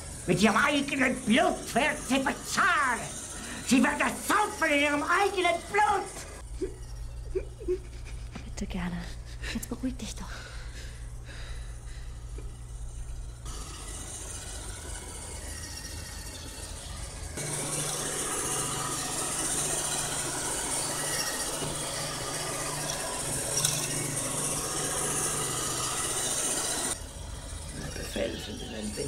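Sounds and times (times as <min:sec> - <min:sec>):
robot vacuum whirring: 0:00.0 - 0:29.0.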